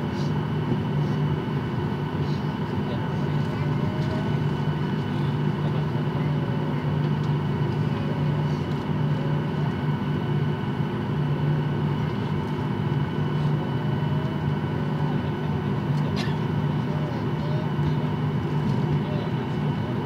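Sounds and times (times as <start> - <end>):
jet cabin low drone: 0.0 - 20.0.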